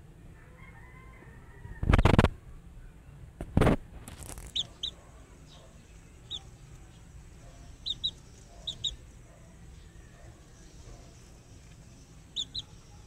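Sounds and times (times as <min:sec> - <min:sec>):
chicks peeping: 0:03.6 - 0:13.0.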